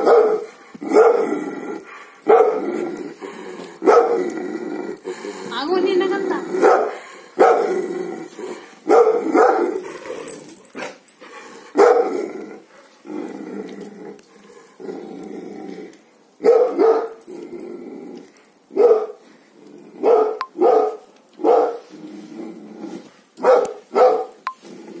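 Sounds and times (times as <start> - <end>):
dog barking: 0.0 - 1.2, 2.2 - 2.6, 3.8 - 4.2, 6.6 - 7.7, 8.8 - 9.8, 11.8 - 12.2, 16.4 - 17.2, 18.7 - 19.2, 20.0 - 21.9, 23.4 - 24.4
dog growling: 0.4 - 16.0, 17.2 - 18.6.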